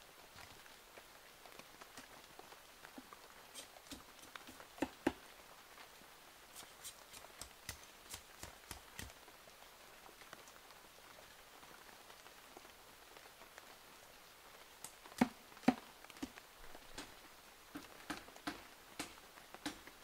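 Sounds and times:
blade knocking on bamboo: 3.9s - 5.2s, 17.8s - 19.8s.

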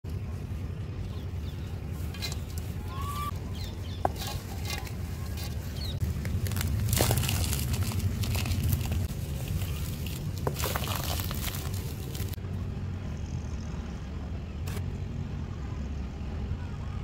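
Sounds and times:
steady low rumble: 0.0s - 17.0s
dry mud crumbling into bowl: 4.0s - 12.4s.

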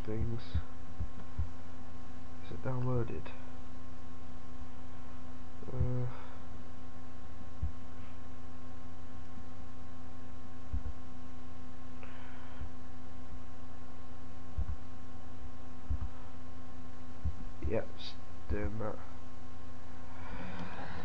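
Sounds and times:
soft low thumps: 0.0s - 1.8s, 5.6s - 6.3s, 7.5s - 8.2s, 10.6s - 11.1s, 14.5s - 15.0s, 15.7s - 16.4s, 17.1s - 17.8s
electrical mains hum: 0.0s - 21.0s.

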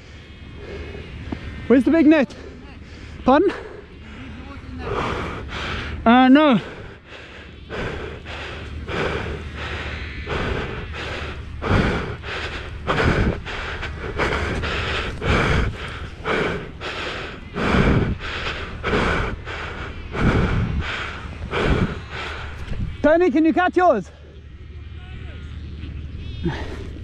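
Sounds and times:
person panting hard: 0.0s - 1.5s, 2.3s - 23.0s, 26.4s - 27.0s.

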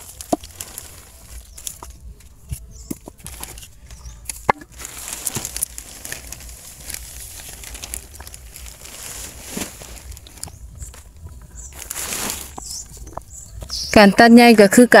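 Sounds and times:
plastic sheeting rustling: 0.0s - 2.2s, 4.7s - 13.1s.

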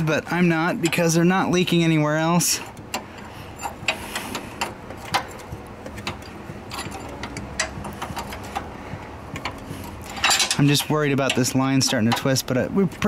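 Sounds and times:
wrench metallic clicks: 2.6s - 8.7s, 9.3s - 13.0s.

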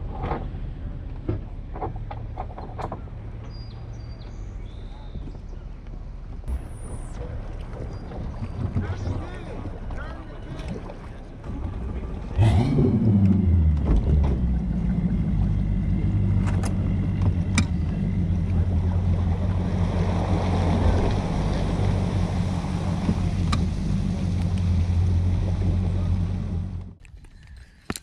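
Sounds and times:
outboard engine starting and idling: 6.5s - 27.0s.

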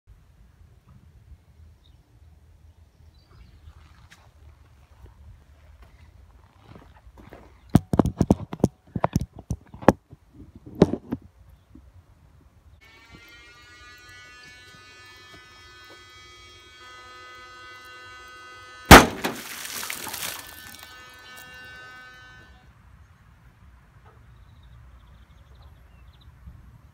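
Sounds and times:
sharp knocks: 18.9s - 19.7s
bottle bursting underwater bang: 18.9s - 20.4s
churning splashing water: 18.9s - 20.8s.

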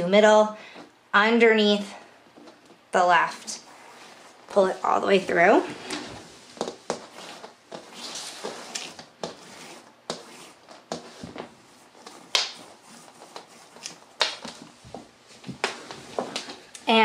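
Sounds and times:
cord rustling swishes: 3.5s - 16.7s.

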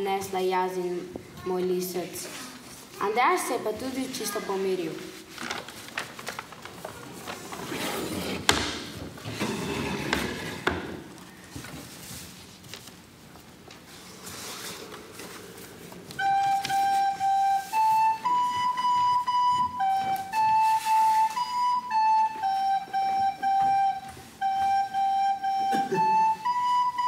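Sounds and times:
rustling of cards: 5.0s - 8.5s, 11.2s - 18.1s
recorder playing slow melody: 16.2s - 27.0s.

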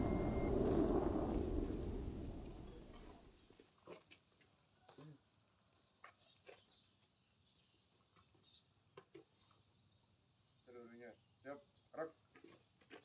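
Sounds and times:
high-pitched insect chorus: 0.0s - 3.1s, 9.6s - 12.9s.

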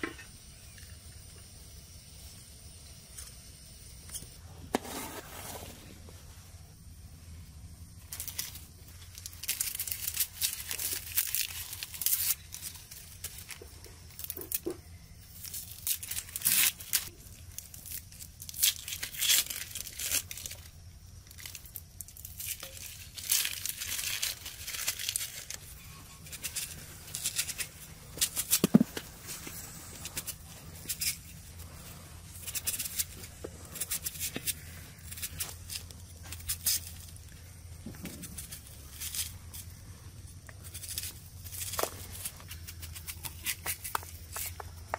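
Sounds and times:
onion skins being torn: 8.1s - 31.8s, 32.4s - 37.2s, 40.4s - 44.9s.

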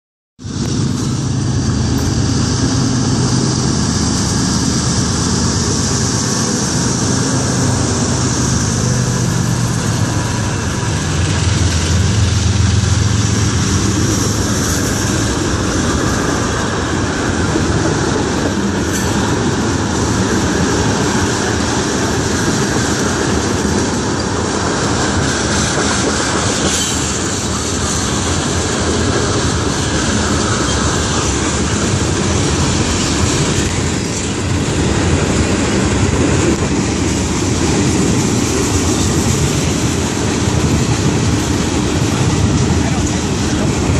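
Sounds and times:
diesel locomotives passing: 0.4s - 43.9s
freight cars wheel and rail noise: 0.4s - 43.9s.

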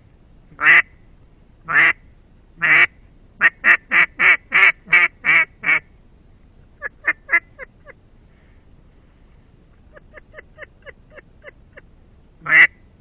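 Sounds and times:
duck call quacks: 2.6s - 5.8s, 12.4s - 12.8s.

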